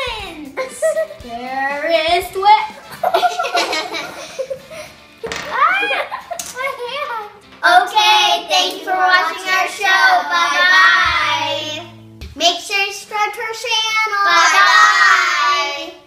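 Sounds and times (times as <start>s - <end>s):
young girls singing together: 7.8s - 12.0s, 14.1s - 16.0s.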